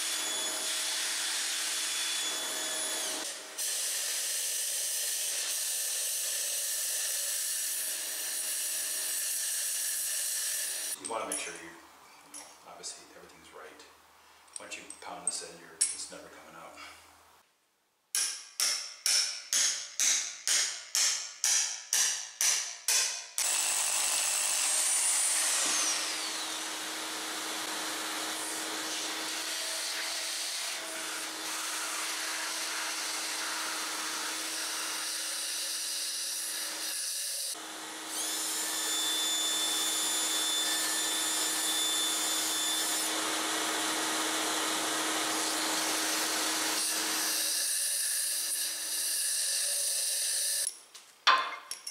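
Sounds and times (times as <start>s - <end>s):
hammer pounding bolt into concrete: 18.1s - 23.4s, 51.3s - 51.9s.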